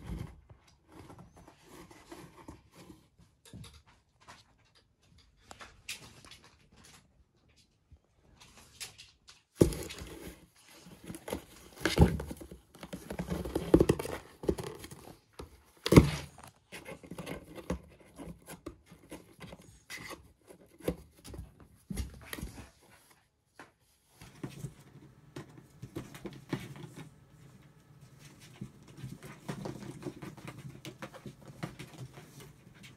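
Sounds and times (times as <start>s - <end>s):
kitten clawing cardboard box: 9.6s - 23.0s, 24.2s - 32.9s.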